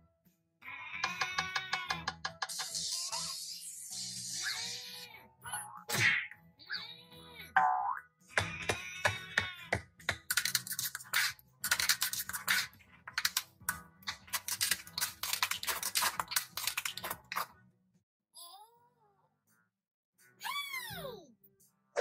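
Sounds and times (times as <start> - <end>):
plastic toy cracking under tyre: 10.1 - 17.5.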